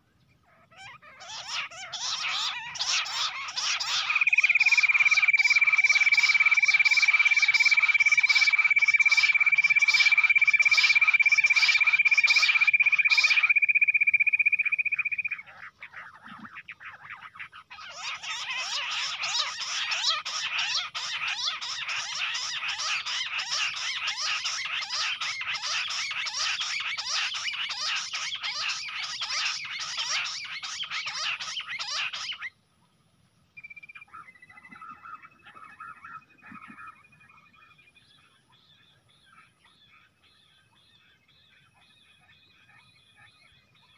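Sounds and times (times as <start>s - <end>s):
quails calling: 0.0s - 32.6s, 33.6s - 43.9s
thin steady whistled tone: 3.8s - 15.4s, 33.6s - 38.0s.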